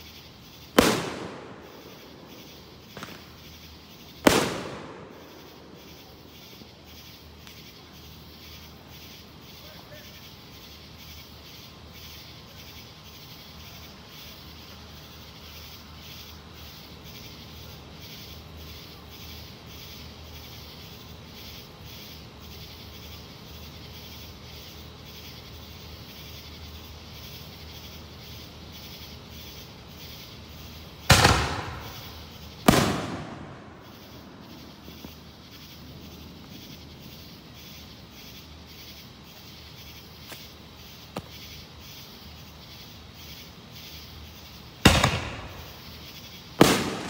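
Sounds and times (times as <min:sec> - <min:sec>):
loud firework bangs: 0:00.7 - 0:06.1, 0:31.0 - 0:35.6, 0:44.8 - 0:46.0, 0:46.6 - 0:47.0
faint distant pops: 0:00.8 - 0:06.3, 0:31.1 - 0:37.4, 0:44.9 - 0:46.0, 0:46.6 - 0:47.0.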